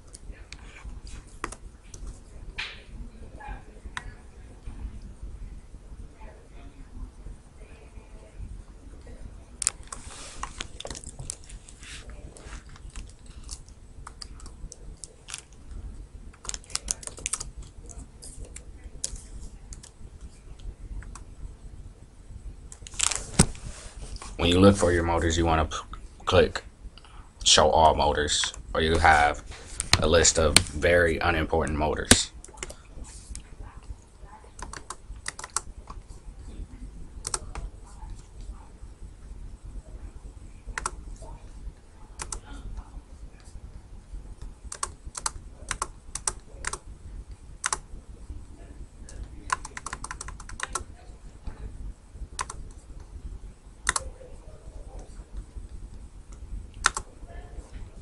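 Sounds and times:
keyboard and mouse clicking: 0:16.3 - 0:19.9, 0:34.6 - 0:36.0, 0:37.2 - 0:37.6, 0:40.8 - 0:41.0, 0:42.2 - 0:42.4, 0:44.7 - 0:46.8, 0:49.2 - 0:50.8, 0:52.4 - 0:52.7, 0:53.9 - 0:54.1, 0:56.8 - 0:57.1.

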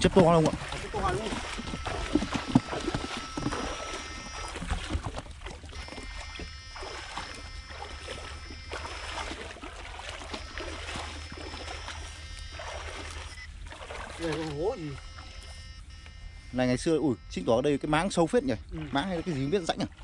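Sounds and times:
wading through water: 0:00.0 - 0:20.0
faint high whine: 0:00.1 - 0:13.6, 0:14.2 - 0:20.0.

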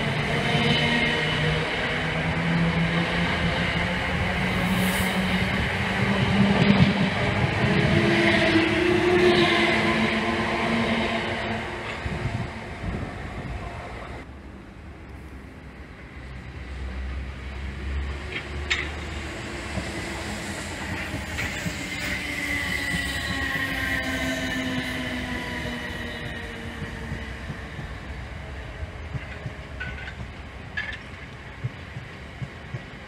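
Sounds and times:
electric train whine: 0:00.0 - 0:14.3, 0:16.4 - 0:33.0
train wheels clicking: 0:18.1 - 0:33.0
electric train running: 0:18.7 - 0:28.4.

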